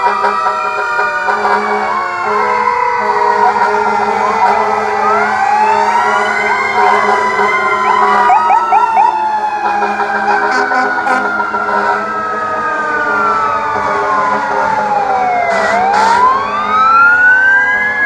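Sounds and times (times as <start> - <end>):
fire engine sirens wailing: 0.0 - 18.0
short siren chirps: 4.2 - 9.2.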